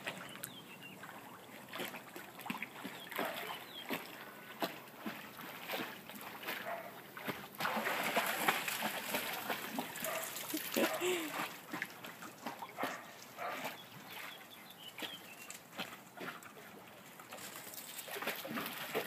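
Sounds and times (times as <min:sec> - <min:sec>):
water splashing: 0:00.0 - 0:19.0.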